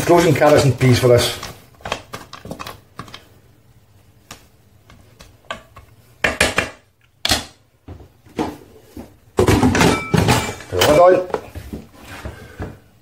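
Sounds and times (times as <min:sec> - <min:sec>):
wooden spoon knocking metal pot: 0:05.5 - 0:06.9.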